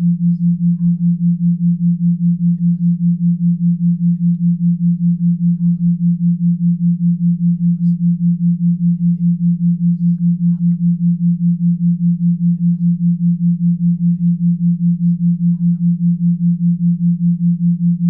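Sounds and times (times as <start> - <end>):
pulsing low sine tone: 0.0 - 18.0.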